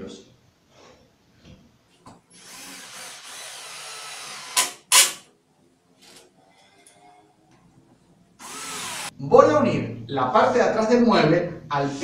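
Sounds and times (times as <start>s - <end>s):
cordless drill driving a screw: 2.3s - 5.1s, 8.4s - 9.1s.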